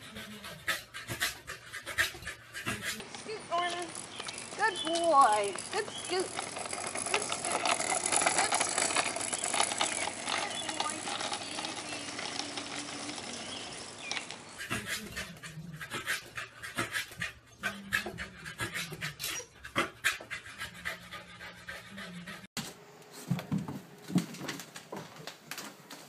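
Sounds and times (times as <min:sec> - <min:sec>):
dog panting: 0:00.0 - 0:09.1, 0:14.6 - 0:22.5
scooter wheels rolling on asphalt: 0:02.7 - 0:15.2.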